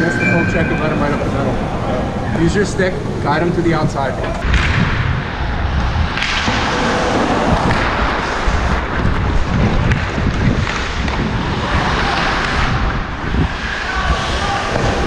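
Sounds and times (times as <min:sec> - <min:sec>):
wind on microphone: 0:00.0 - 0:15.0
skates scraping on ice: 0:06.1 - 0:15.0.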